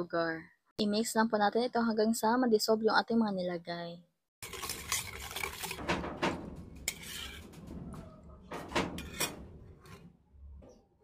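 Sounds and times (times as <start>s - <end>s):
utensil clinking and scraping bowl: 4.4s - 10.1s.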